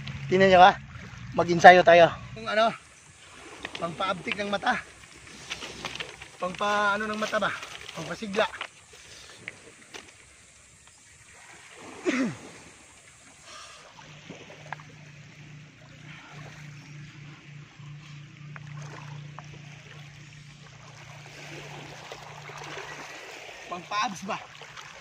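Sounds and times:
small waves lapping: 0.0s - 25.0s
steady low hum: 8.7s - 23.7s.

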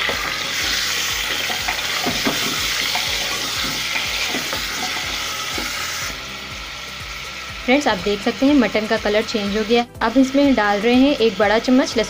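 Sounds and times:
spatula scraping and knocking pot: 0.0s - 5.9s
meat sizzling in hot oil: 0.0s - 12.0s.

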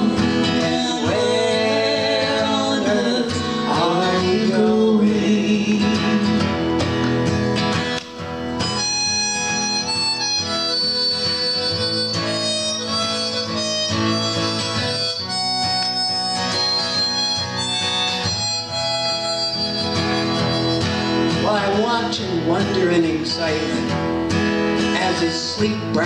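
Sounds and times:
harmonica playing: 0.0s - 4.9s, 8.4s - 22.2s
strummed acoustic guitar: 0.0s - 26.0s.

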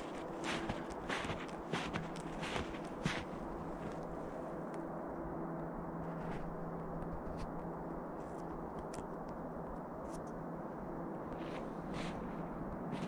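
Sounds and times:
footsteps crunching in snow: 0.0s - 4.4s, 11.3s - 13.0s.

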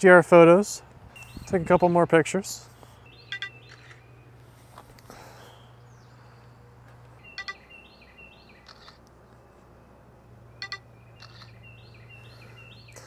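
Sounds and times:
birds chirping: 0.8s - 13.0s
phone camera shutter click: 8.6s - 9.1s, 10.6s - 11.6s.

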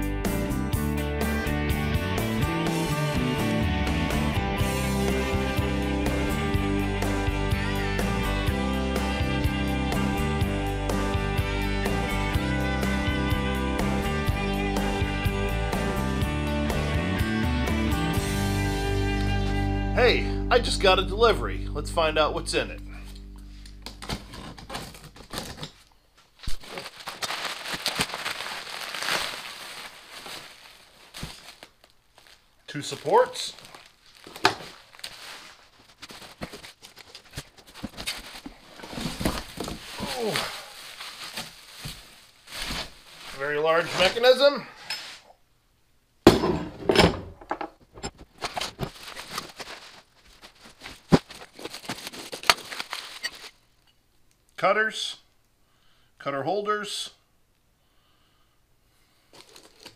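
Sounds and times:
bubble wrap crinkling: 26.2s - 44.4s, 48.3s - 53.8s, 59.3s - 59.9s
cardboard box being opened: 33.7s - 44.2s, 48.4s - 53.5s.

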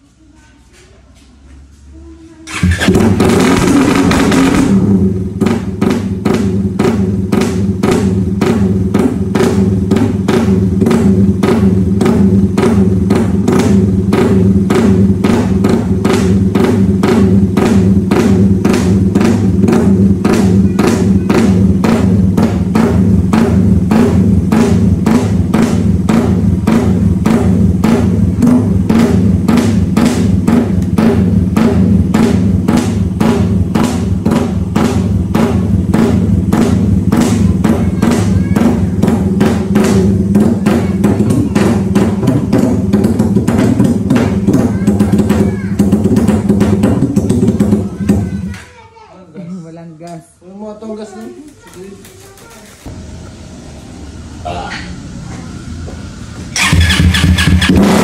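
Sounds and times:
sustained bass line: 2.5s - 44.8s
music with fast drum beat: 2.7s - 48.4s.

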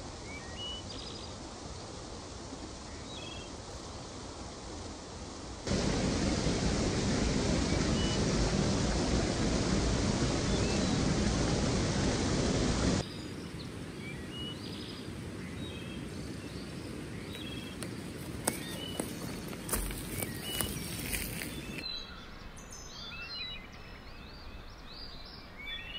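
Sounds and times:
stream rushing over rocks: 2.0s - 14.3s, 14.9s - 22.0s
small birds chirping: 13.0s - 25.9s.

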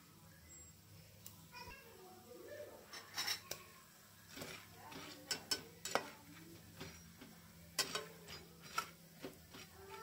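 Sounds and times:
popcorn kernels ticking in oil: 2.9s - 10.0s.

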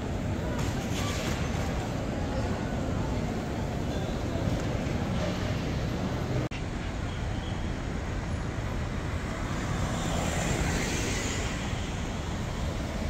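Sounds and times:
cars driving past: 7.9s - 13.0s.

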